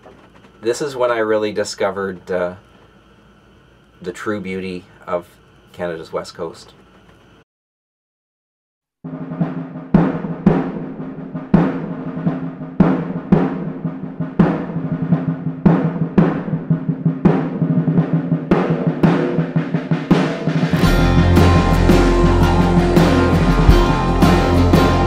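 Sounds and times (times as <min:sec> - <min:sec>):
drum hits: 0:09.1 - 0:25.0
low sustained notes: 0:20.8 - 0:25.0.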